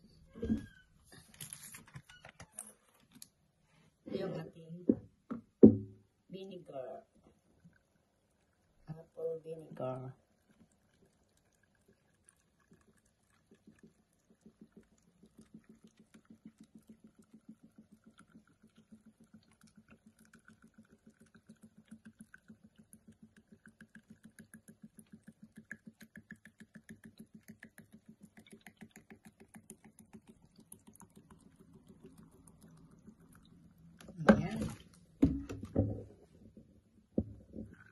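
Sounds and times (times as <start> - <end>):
vinegar pouring into a jar: 7.1 - 36.6.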